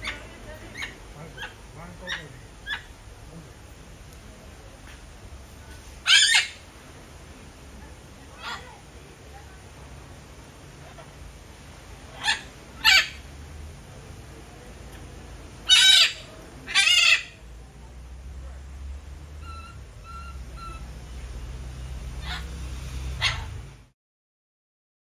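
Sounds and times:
macaw squawking: 0.0 - 3.0, 6.0 - 6.6, 12.1 - 13.2, 15.7 - 17.4, 19.4 - 20.9, 22.2 - 22.6.

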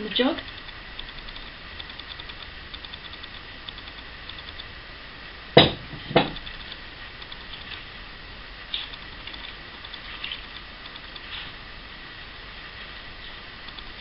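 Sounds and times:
glass jug knocking on worktop: 5.6 - 6.4.

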